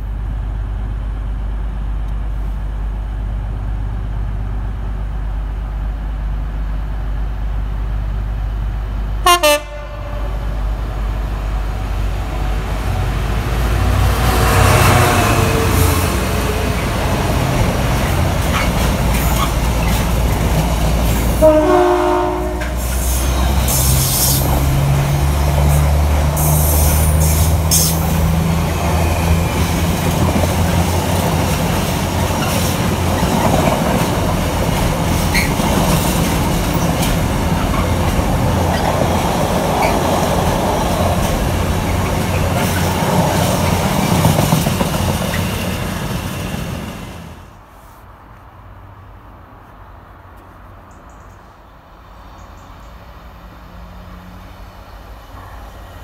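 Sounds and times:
train horn blast: 0:09.2 - 0:10.7, 0:21.4 - 0:23.2
train wheels clattering on rails: 0:14.3 - 0:21.4, 0:22.5 - 0:47.2.

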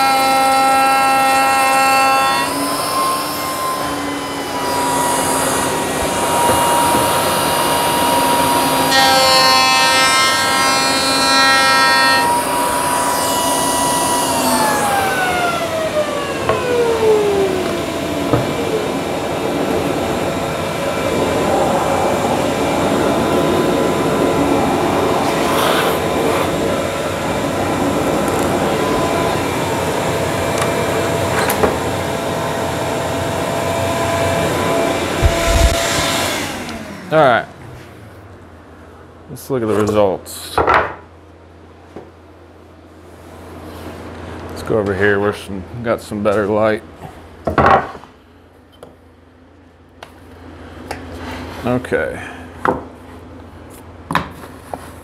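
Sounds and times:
router spinning and winding down: 0:09.8 - 0:21.5, 0:22.1 - 0:37.4
steady machine drone: 0:12.2 - 0:39.1.

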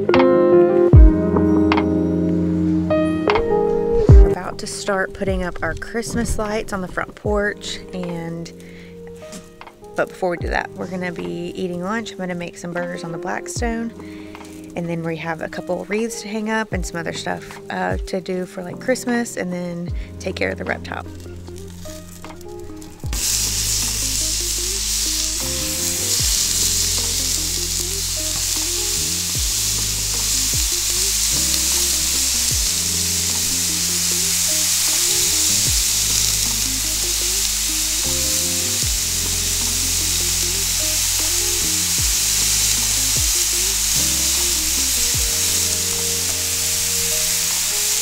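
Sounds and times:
background music: 0:00.0 - 0:48.0
burgers sizzling on a griddle: 0:14.4 - 0:14.8, 0:21.2 - 0:48.0.

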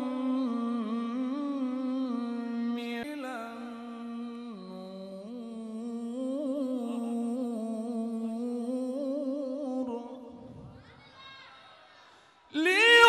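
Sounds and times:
man reciting melodically: 0:00.0 - 0:10.2.

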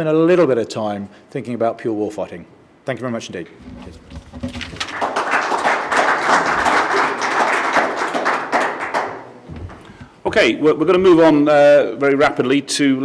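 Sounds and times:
audience applauding: 0:04.8 - 0:09.4.

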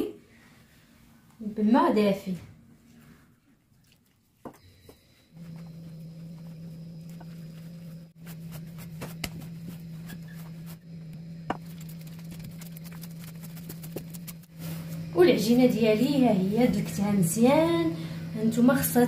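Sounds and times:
steady low hum: 0:04.5 - 0:19.0
hands kneading wet dough: 0:11.6 - 0:14.6.

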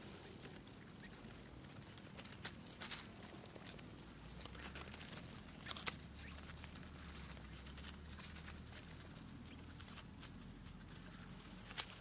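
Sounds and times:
dry leaves and grass rustling: 0:00.0 - 0:12.0.

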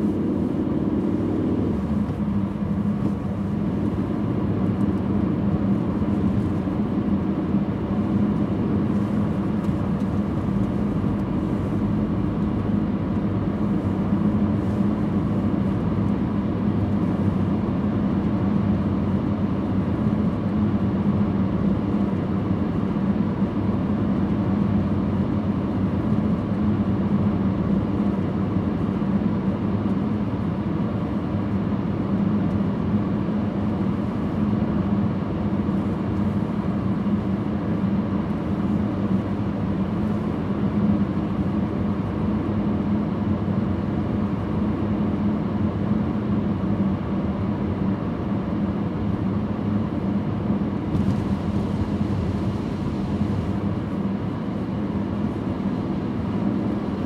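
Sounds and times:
car driving road noise: 0:00.0 - 0:26.4, 0:50.1 - 0:56.9
steady low hum: 0:00.0 - 0:57.0.

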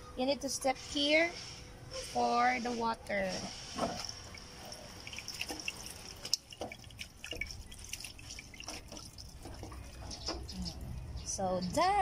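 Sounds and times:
water splashing into basin: 0:03.7 - 0:10.5
water running over hands: 0:03.8 - 0:10.4.

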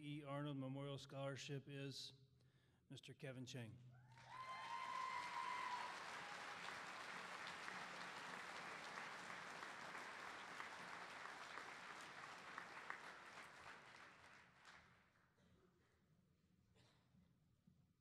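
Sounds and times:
audience applauding: 0:04.2 - 0:14.9.

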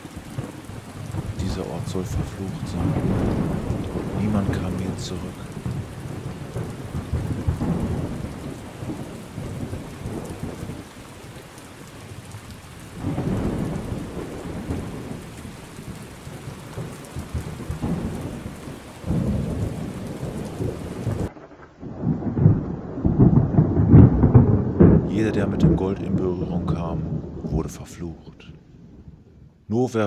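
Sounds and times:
rolling thunder: 0:00.0 - 0:29.7
steady rain: 0:00.0 - 0:30.0.

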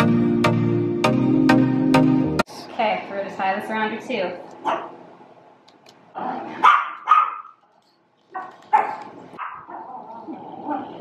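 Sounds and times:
small dog yapping: 0:04.6 - 0:05.0, 0:06.5 - 0:07.6, 0:08.3 - 0:10.2.

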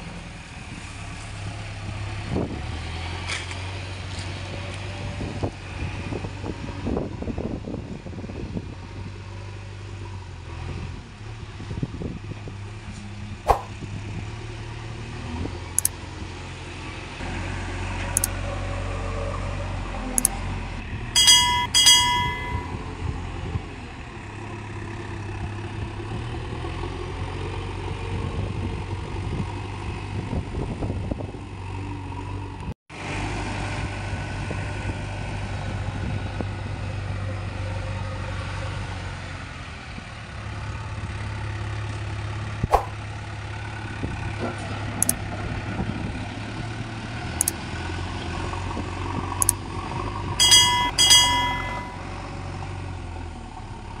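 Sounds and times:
short chime: 0:21.2 - 0:22.9, 0:50.4 - 0:52.0.

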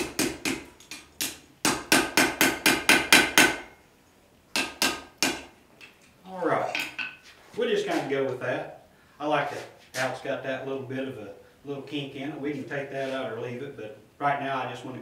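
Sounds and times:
hammer striking iron on anvil: 0:00.0 - 0:03.7, 0:04.6 - 0:05.5.

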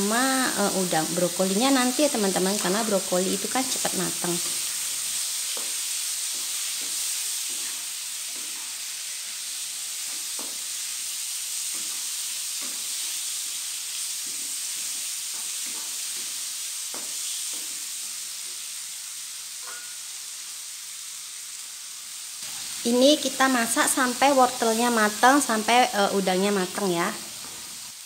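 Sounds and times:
food sizzling in oil: 0:00.0 - 0:28.0.

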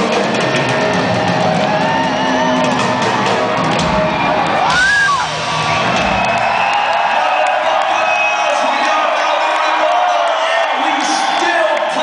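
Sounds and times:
live hard rock band: 0:00.0 - 0:08.7.

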